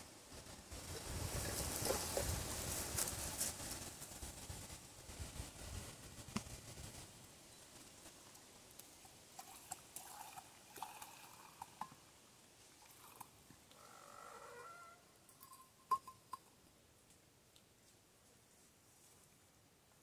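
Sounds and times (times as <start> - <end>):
liquid pouring: 9.3 - 12.0, 12.8 - 13.3
mug clinking on stones: 15.3 - 16.5.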